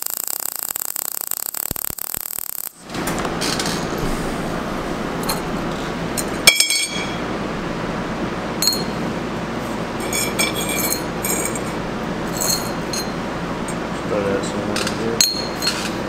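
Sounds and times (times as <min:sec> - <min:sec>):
steady background noise: 0:00.0 - 0:16.0
steel parts clinking on table: 0:10.0 - 0:11.7, 0:12.3 - 0:13.1, 0:15.2 - 0:16.0.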